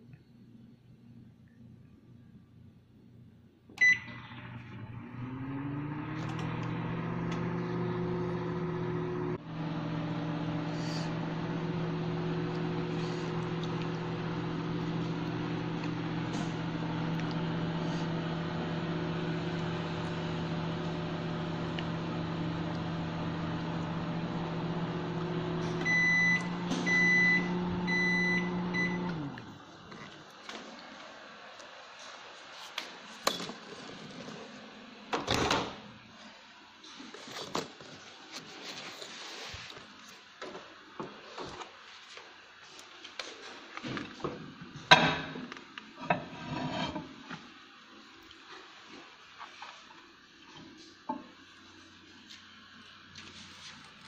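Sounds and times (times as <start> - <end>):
microwave oven humming: 3.7 - 30.6
microwave beeps: 3.8 - 4.3, 25.6 - 29.3.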